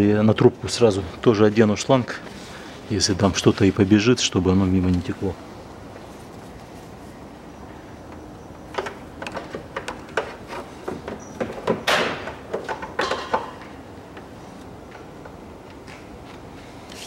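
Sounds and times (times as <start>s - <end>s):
hose handling clicks and knocks: 8.1s - 14.3s.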